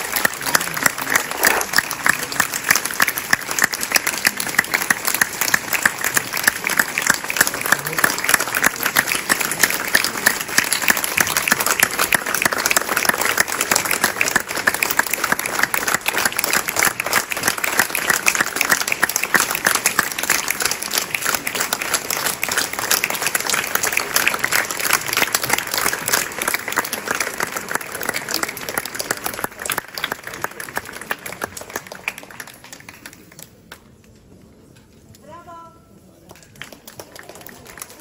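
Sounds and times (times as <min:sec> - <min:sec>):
audience applauding: 0:00.0 - 0:33.6, 0:36.3 - 0:38.0.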